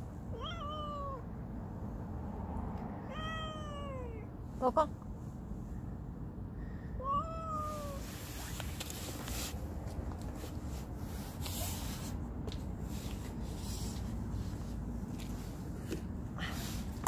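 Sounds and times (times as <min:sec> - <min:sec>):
steady low rumble: 0:00.0 - 0:17.0
cat meowing: 0:00.3 - 0:01.3, 0:03.0 - 0:04.3, 0:07.0 - 0:08.0.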